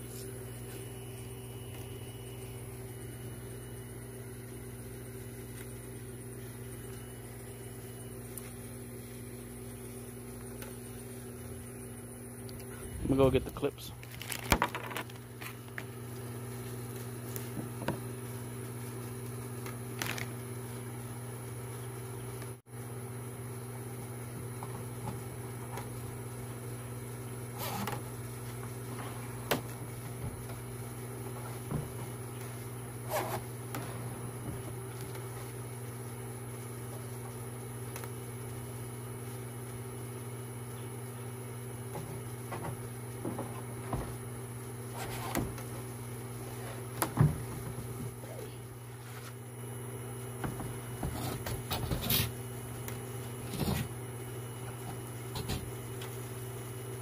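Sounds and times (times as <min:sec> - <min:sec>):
low mechanical hum: 0:00.0 - 0:57.0
knocks and rattles of plastic parts: 0:14.0 - 0:15.2.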